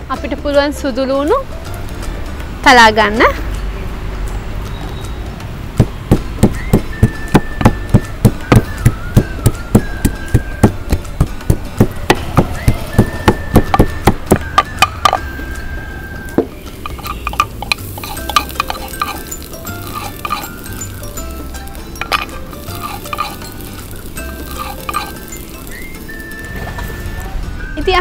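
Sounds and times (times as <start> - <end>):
pestle pounding in wooden mortar: 5.8 - 15.2, 16.4 - 26.0.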